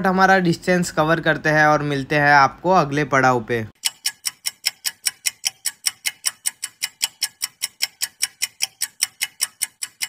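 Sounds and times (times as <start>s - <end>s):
fast clock ticking: 3.8s - 10.0s.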